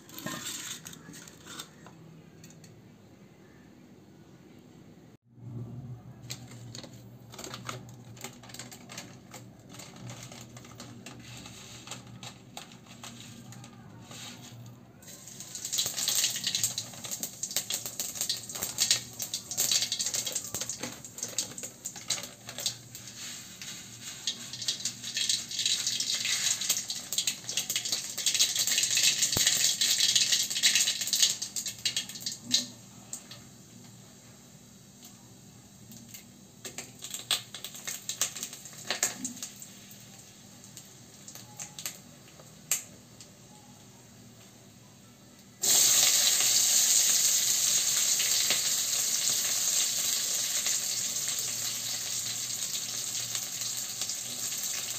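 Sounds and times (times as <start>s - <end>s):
hot oil sizzling: 15.0s - 43.2s, 45.6s - 54.9s.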